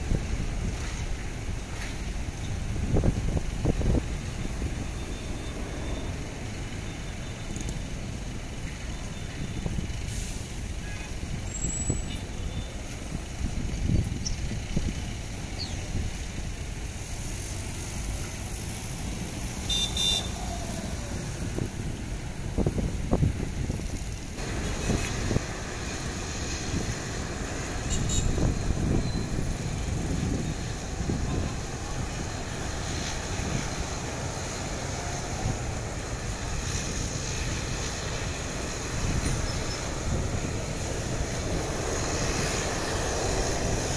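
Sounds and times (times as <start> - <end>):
wind buffeting microphone: 0.0 - 6.9, 12.8 - 17.1, 20.5 - 43.9
jet engines rumbling at take-off: 0.0 - 43.9
street traffic: 0.0 - 43.9.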